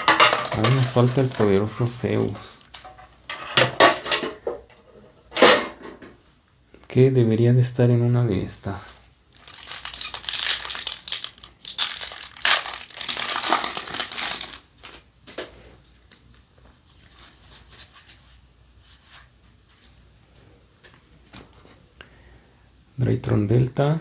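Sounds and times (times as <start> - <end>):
foil wrapper tearing and crinkling: 0.0 - 1.6, 9.3 - 14.9.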